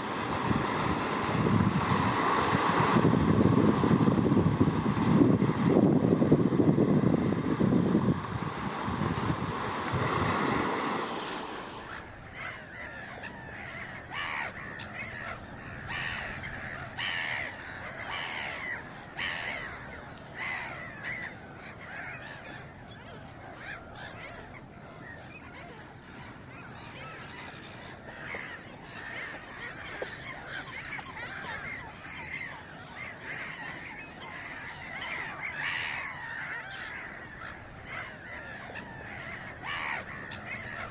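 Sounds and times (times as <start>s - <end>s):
wind on microphone: 0.0s - 12.4s
surf: 0.0s - 40.9s
harsh bird calls: 11.8s - 40.9s.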